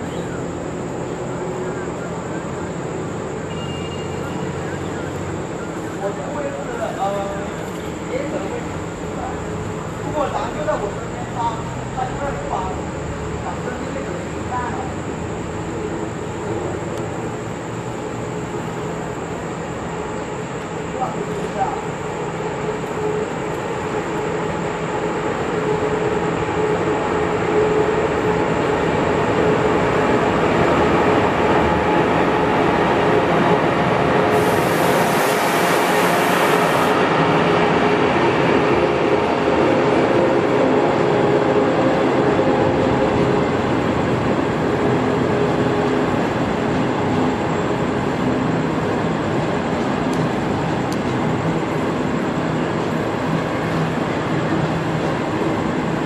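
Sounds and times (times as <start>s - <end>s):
train wheels rolling on rail: 0.0s - 56.0s
brief high hiss: 34.3s - 37.0s.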